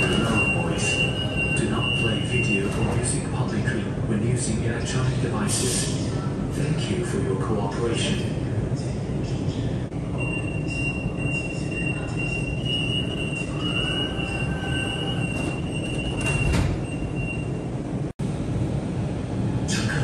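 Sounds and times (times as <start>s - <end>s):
door-closing warning tone: 0.0s - 3.1s, 10.1s - 17.7s
train low hum: 0.0s - 20.0s.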